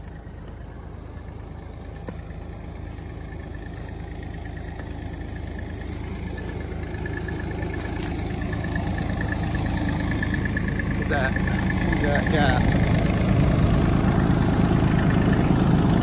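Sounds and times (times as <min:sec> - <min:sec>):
excavator engine idling: 0:00.0 - 0:16.0.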